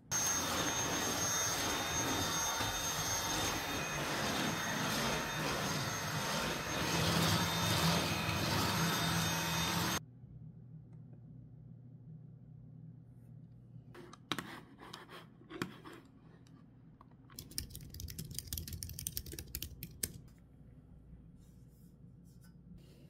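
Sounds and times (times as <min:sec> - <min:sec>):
stick vacuum cleaner running: 0:00.0 - 0:10.0.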